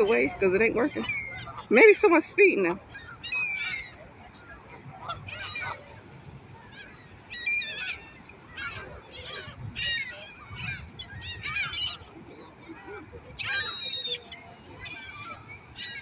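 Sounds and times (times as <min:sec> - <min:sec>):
gulls and geese calling: 0:00.0 - 0:16.0.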